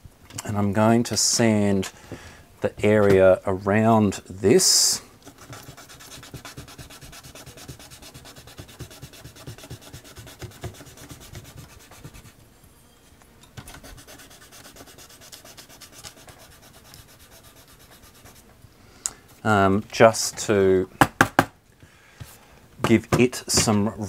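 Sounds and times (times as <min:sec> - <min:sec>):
sandpaper rubbing on plastic: 0:05.3 - 0:12.4, 0:13.7 - 0:18.5.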